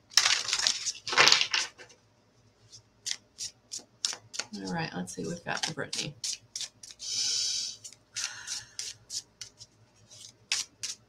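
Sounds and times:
cards being shuffled: 0.1s - 1.9s, 3.0s - 4.7s, 5.6s - 7.0s, 7.8s - 11.0s
cards flicking and tapping: 3.1s - 4.5s, 5.6s - 7.0s, 7.8s - 11.0s.

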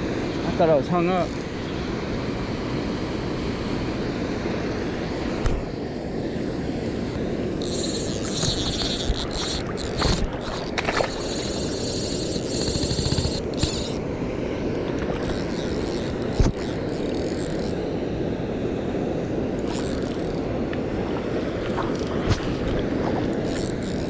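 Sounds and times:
water rushing: 0.0s - 24.0s
fishing reel drag buzzing: 1.0s - 1.5s, 7.6s - 14.0s, 14.7s - 17.8s, 19.6s - 20.4s, 21.9s - 22.2s, 23.4s - 24.0s.

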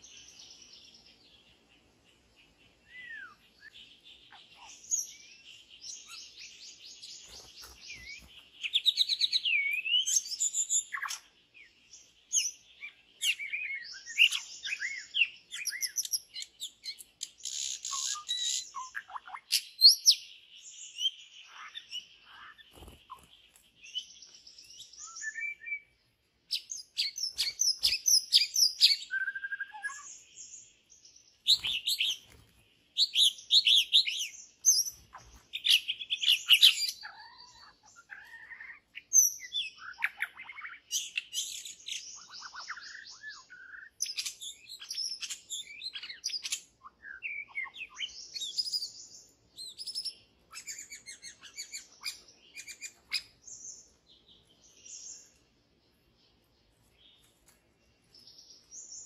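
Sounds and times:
bird whistling and chirping: 2.9s - 11.3s, 12.3s - 20.3s, 21.0s - 25.9s, 26.5s - 30.5s, 31.4s - 32.4s, 33.0s - 53.9s.

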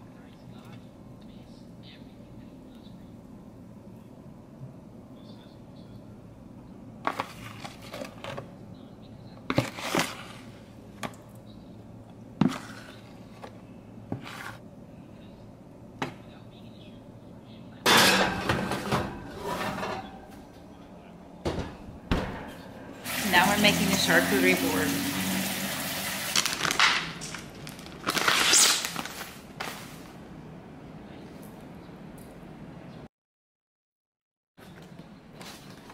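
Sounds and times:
rustling and crinkling: 7.0s - 8.5s, 9.4s - 10.6s, 12.4s - 14.6s, 26.3s - 30.2s, 34.6s - 35.9s
kitchen items knocking and clattering: 17.9s - 20.5s, 21.4s - 25.0s, 26.2s - 28.3s.

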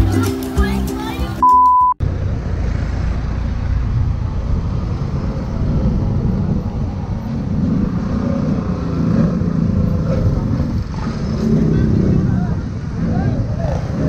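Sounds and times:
road and wind noise: 0.0s - 14.0s
high beep: 1.4s - 2.0s.

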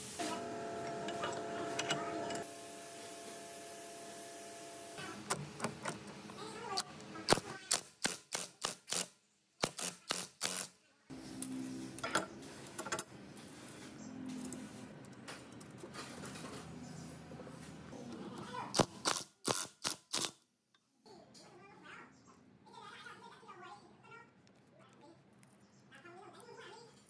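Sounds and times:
power driver humming: 0.2s - 2.5s.

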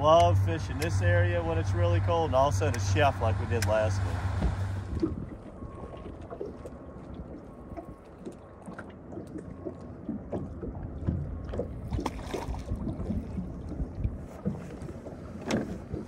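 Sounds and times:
small waves lapping against boat hull: 0.0s - 16.0s
small splashes and ticks: 0.1s - 16.0s
wind on microphone: 3.3s - 8.4s, 11.0s - 16.0s.

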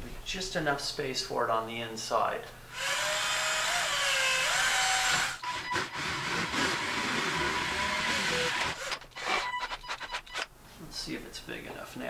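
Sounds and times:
cordless drill boring plastic: 2.7s - 9.5s.

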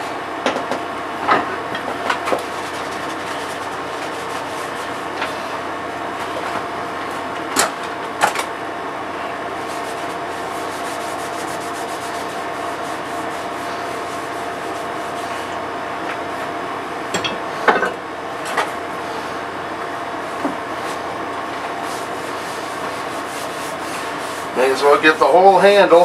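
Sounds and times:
steady hum: 0.0s - 26.0s
hand rubbing oil into wood: 9.6s - 15.5s.

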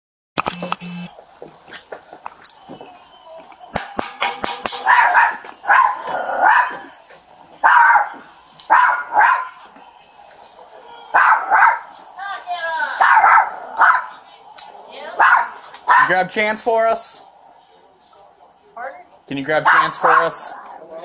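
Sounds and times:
dog barking behind door: 4.8s - 7.0s, 7.6s - 9.6s, 11.1s - 12.0s, 13.0s - 14.2s, 15.2s - 16.2s, 19.6s - 20.6s.

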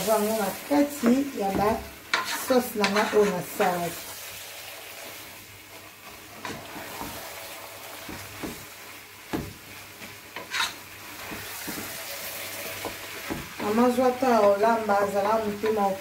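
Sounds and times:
steady sizzle: 0.0s - 16.0s
spatula scraping metal pot: 2.1s - 3.8s, 10.4s - 10.8s.

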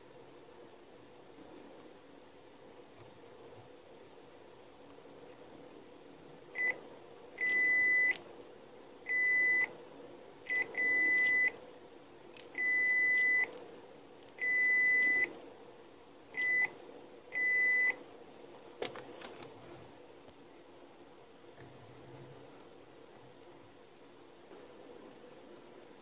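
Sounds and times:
multimeter continuity beeps: 6.5s - 6.8s, 7.4s - 8.2s, 9.1s - 9.7s, 10.5s - 11.6s, 12.5s - 13.5s, 14.4s - 15.4s, 16.3s - 18.0s.

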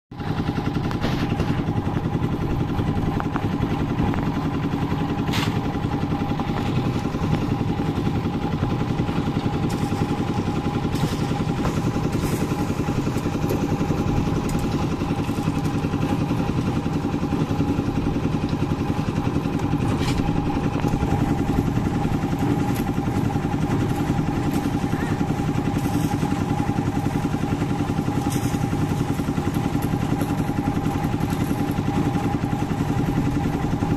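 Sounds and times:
concrete mixer running: 0.1s - 33.9s.

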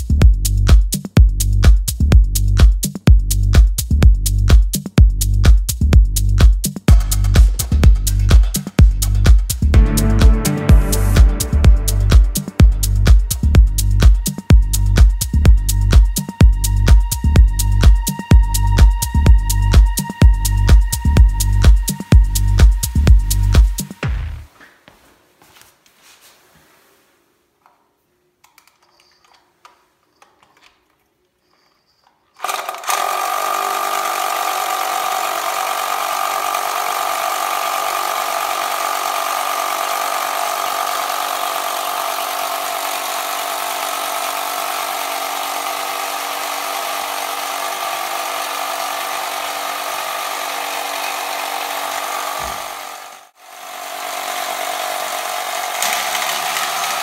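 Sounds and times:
toy motor whirring: 14.2s - 24.0s, 31.7s - 57.0s.

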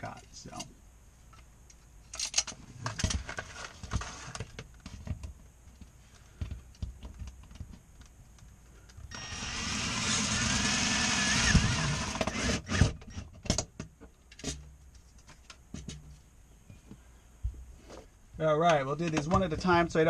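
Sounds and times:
cordless drill driving screw: 9.1s - 13.2s.

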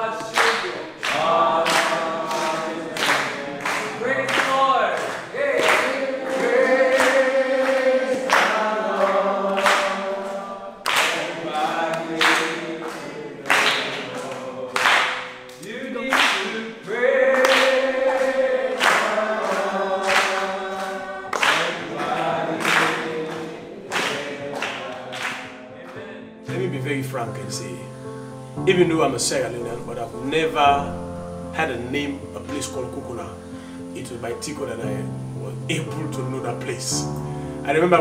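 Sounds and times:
congregation singing unaccompanied: 0.0s - 38.0s
sharp hand claps: 0.1s - 26.6s.

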